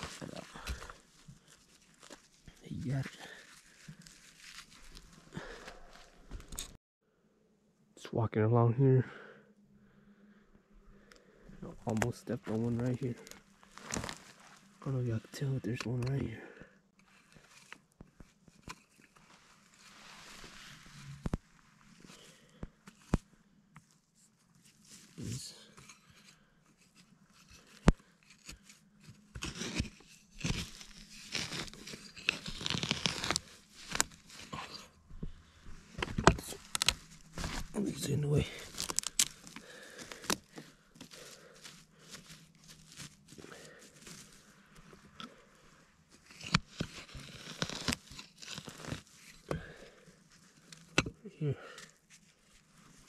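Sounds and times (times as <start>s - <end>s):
crunching and tearing: 0.0s - 6.8s, 11.8s - 14.7s, 26.9s - 35.0s, 35.9s - 53.0s
tool scraping through soil: 0.0s - 6.8s, 24.6s - 45.4s, 46.1s - 51.1s
metal tool scraping soil: 25.2s - 34.8s, 46.2s - 49.5s.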